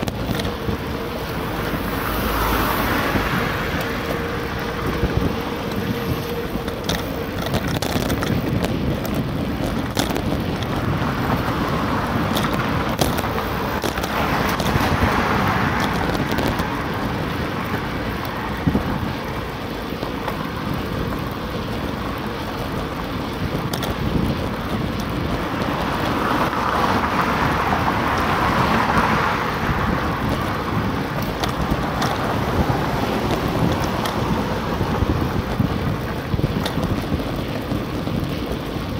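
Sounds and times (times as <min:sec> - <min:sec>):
small clicks and knocks: 0:00.0 - 0:00.8, 0:04.9 - 0:10.9, 0:12.2 - 0:17.1, 0:23.5 - 0:26.5, 0:30.2 - 0:38.9
street traffic noise: 0:00.0 - 0:38.9
wind rumbling on microphone: 0:00.0 - 0:38.9.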